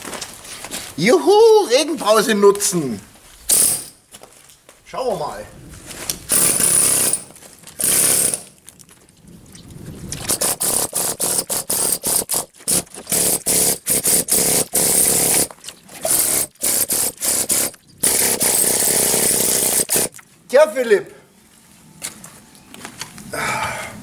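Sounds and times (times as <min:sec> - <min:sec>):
air chisel hammering: 0:10.3 - 0:15.5.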